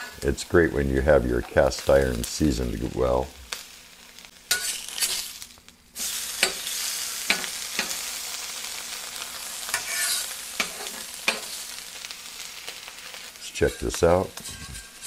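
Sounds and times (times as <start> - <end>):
food sizzling on griddle: 0.0 - 15.0
metal spatula scraping and clicking: 4.5 - 5.2, 9.7 - 11.6, 13.7 - 15.0.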